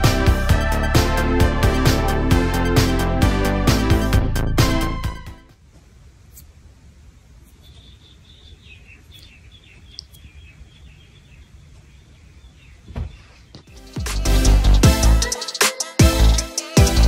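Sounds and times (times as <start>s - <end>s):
low room hum: 5.4s - 13.6s
small birds chirping: 7.3s - 13.9s
dull thump: 12.9s - 13.2s.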